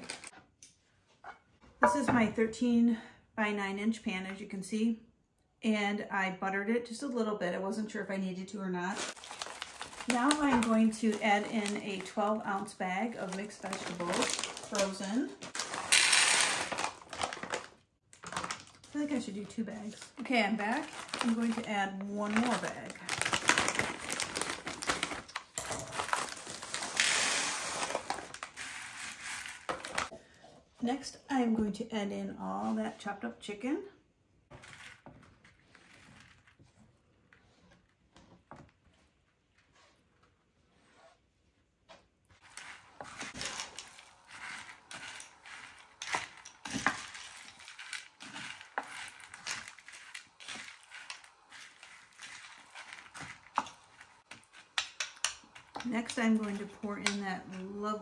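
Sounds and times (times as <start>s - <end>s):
vegetables crackling as spread: 0.0s - 0.3s, 8.9s - 30.1s, 42.3s - 58.0s
frozen vegetables rattling into a dish: 9.0s - 12.2s, 13.3s - 17.7s, 20.6s - 21.7s, 42.4s - 53.7s
frozen pieces scraping on glass: 15.5s - 16.9s.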